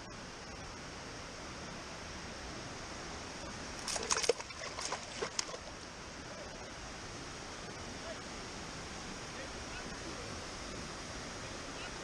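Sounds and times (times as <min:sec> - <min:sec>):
river water rushing: 0:00.2 - 0:12.0
fish flapping on wet stone: 0:03.8 - 0:05.6.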